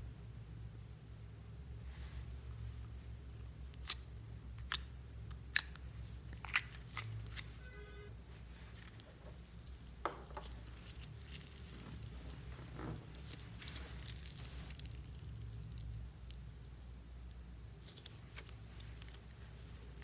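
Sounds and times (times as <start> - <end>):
low steady hum: 0.0 - 20.0
slime being squeezed: 10.5 - 20.0.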